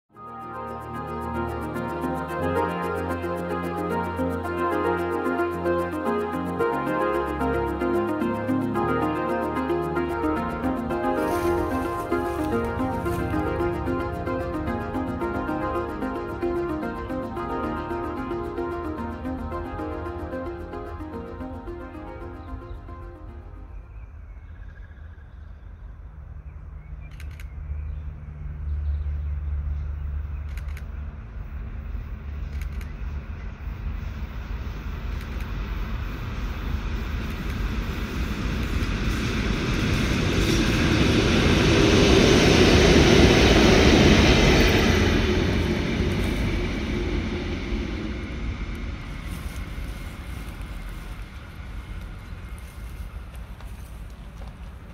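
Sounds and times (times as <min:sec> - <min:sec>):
locomotive engine rumble: 0:01.1 - 0:23.6, 0:28.3 - 0:54.9
short clicks: 0:27.1 - 0:27.6
train wheels on rails: 0:33.5 - 0:54.9.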